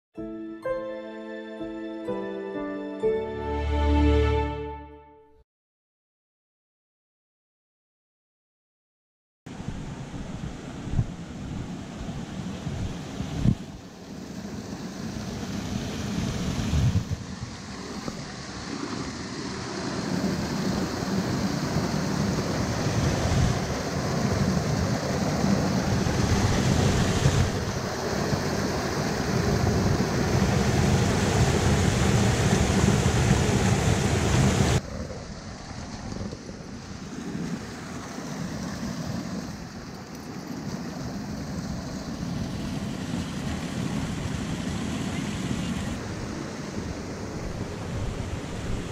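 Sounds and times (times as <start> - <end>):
water rushing over rock ledge: 14.9 - 45.2.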